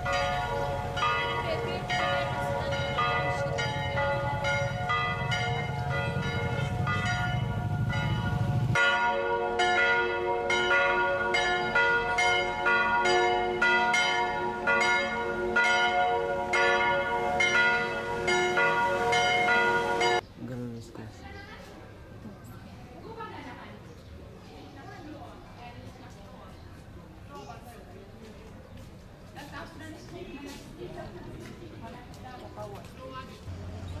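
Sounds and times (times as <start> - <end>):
church bells ringing: 0.0 - 20.2.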